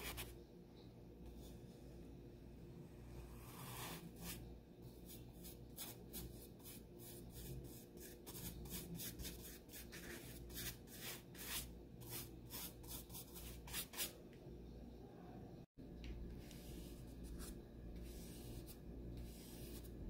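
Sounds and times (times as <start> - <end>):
paintbrush brushing on paper: 16.4 - 20.0.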